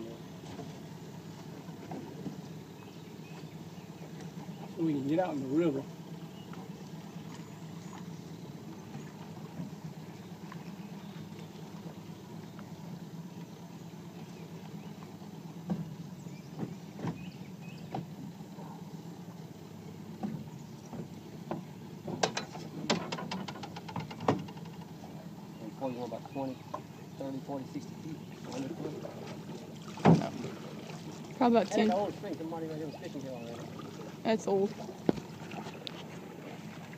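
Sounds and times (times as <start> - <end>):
steady low hum: 0.0 - 36.9.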